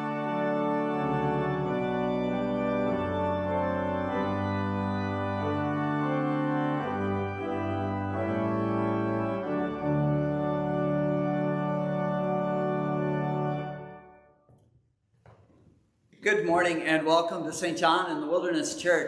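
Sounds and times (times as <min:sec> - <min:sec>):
organ playing slow chords: 0:00.0 - 0:14.4.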